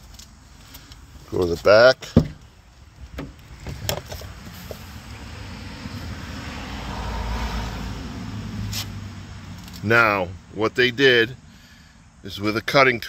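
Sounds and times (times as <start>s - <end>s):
vehicle passing: 4.3s - 11.6s.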